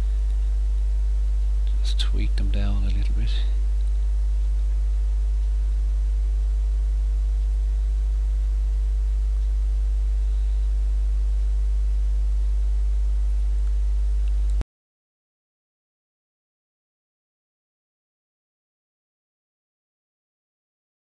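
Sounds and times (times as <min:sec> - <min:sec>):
electrical mains hum: 0:00.0 - 0:14.6.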